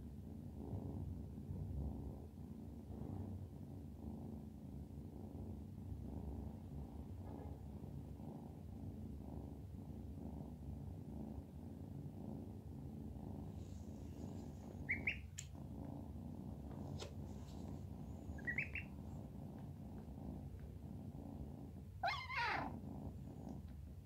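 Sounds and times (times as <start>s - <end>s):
kitten purring: 0.0s - 24.0s
duckling peeping: 14.8s - 15.4s, 18.4s - 18.9s.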